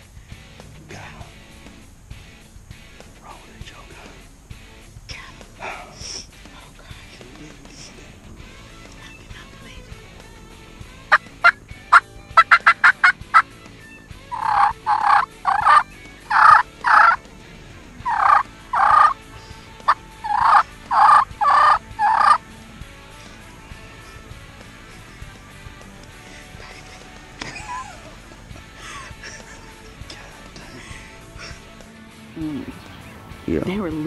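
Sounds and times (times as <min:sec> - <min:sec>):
turkeys clucking and calling: 0:10.9 - 0:25.3.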